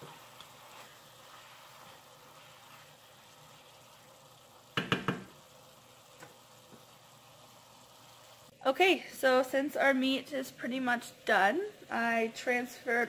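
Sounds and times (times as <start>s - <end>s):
wooden spoon scraping a pan: 0.0s - 4.1s
meat sizzling in a frying pan: 0.0s - 8.6s.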